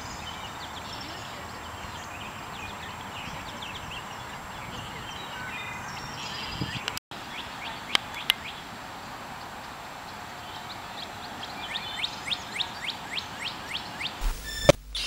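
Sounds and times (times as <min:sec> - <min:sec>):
small birds chirping: 0:00.0 - 0:08.7, 0:09.3 - 0:15.0
steady background hiss: 0:07.2 - 0:15.0
sharp clicks: 0:14.2 - 0:15.0.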